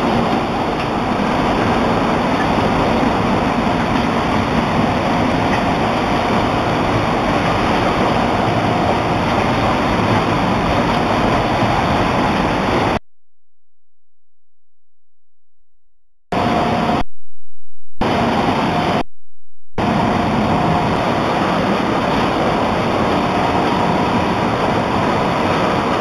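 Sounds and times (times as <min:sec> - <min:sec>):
bottling line mechanical noise: 0:00.0 - 0:13.0, 0:19.8 - 0:26.0.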